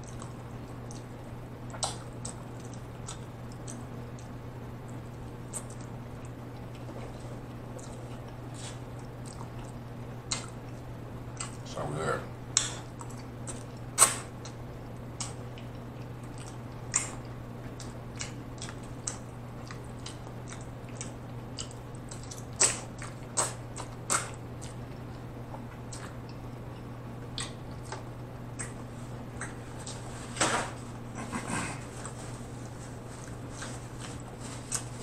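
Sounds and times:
wet chewing and slurping: 12.6s - 28.8s.

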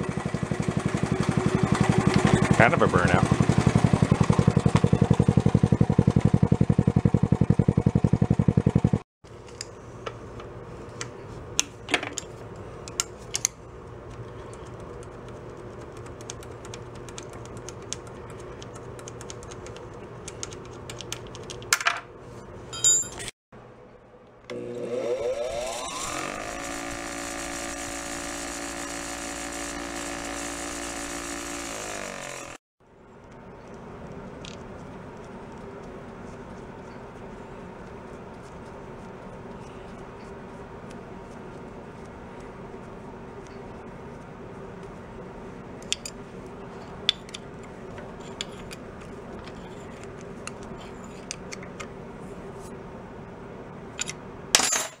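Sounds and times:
steady background hum: 0.0s - 55.0s
bench grinder wire wheel spinning: 0.1s - 8.2s, 24.5s - 32.6s.

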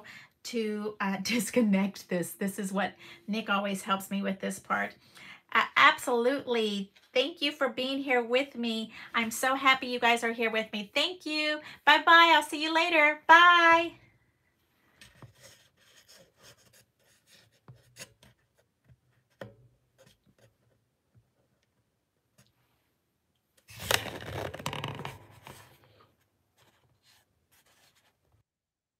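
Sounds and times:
phone handling rubbing and scraping: 23.6s - 25.9s.

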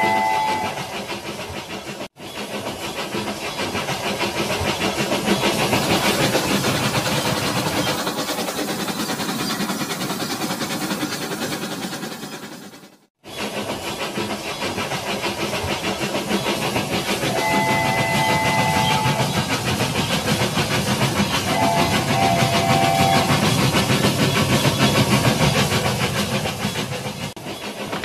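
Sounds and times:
electronic whistle toots: 0.0s - 0.8s, 17.4s - 19.3s, 21.5s - 23.3s.

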